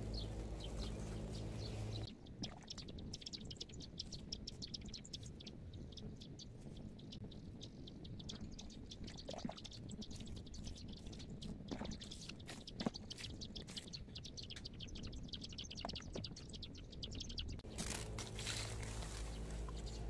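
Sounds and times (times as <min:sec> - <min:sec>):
small birds chirping: 0:00.0 - 0:20.0.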